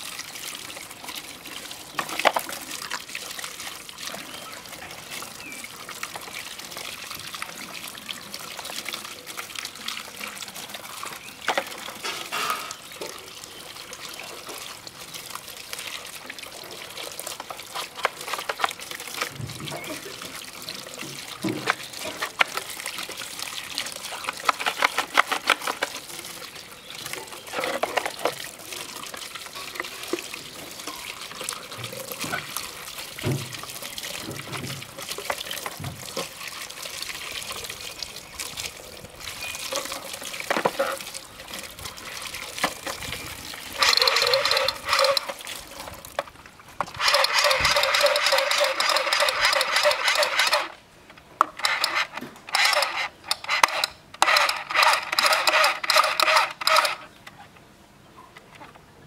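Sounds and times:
water pouring and splashing: 0.0s - 57.7s
plastic clicks and clatter: 2.0s - 2.5s, 24.2s - 26.0s, 46.2s - 57.6s
hands scrubbing plastic: 17.4s - 20.1s, 21.3s - 23.2s, 23.8s - 26.2s, 27.4s - 30.2s, 42.2s - 50.8s.

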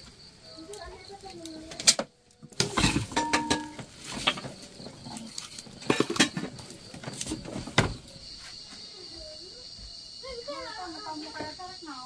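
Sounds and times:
knocks and clatters: 1.8s - 8.1s.

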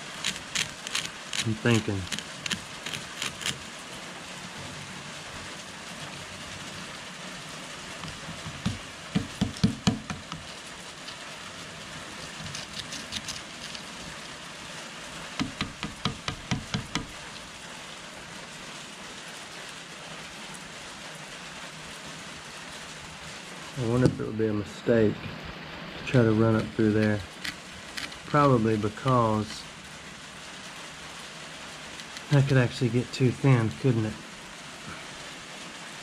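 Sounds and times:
steel pick scraping rust: 0.0s - 3.6s, 8.0s - 11.4s, 12.2s - 14.0s, 27.3s - 28.4s
steady hiss: 0.0s - 36.0s.

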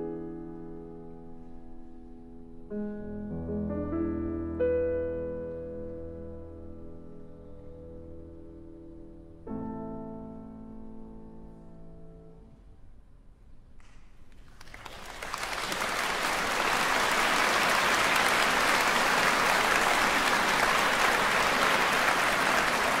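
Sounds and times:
audience applauding: 14.3s - 23.0s.

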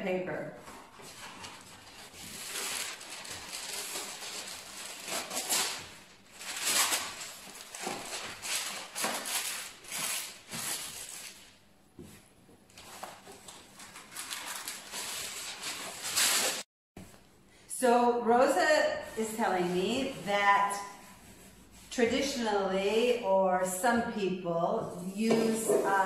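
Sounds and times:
hands kneading dough: 19.0s - 23.0s.

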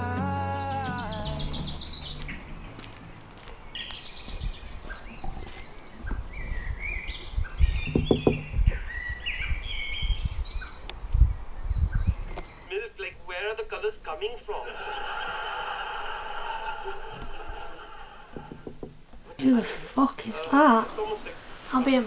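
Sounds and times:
small birds chirping: 0.5s - 14.2s
dull low thumps: 6.0s - 10.4s.

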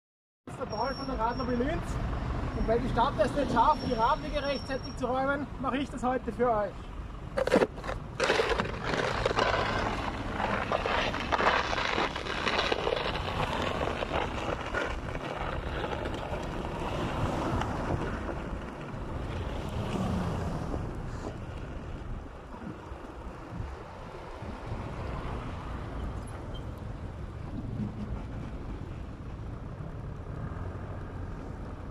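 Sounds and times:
road traffic: 0.5s - 31.9s
snow shovel scraping snow: 7.4s - 17.1s
wind noise on microphone: 7.4s - 30.1s.

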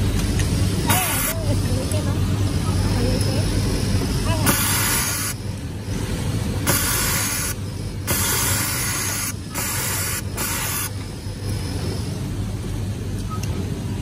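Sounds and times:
steady low hum: 0.0s - 14.0s
sewing machine hissing bursts: 4.5s - 5.4s, 6.6s - 11.0s.

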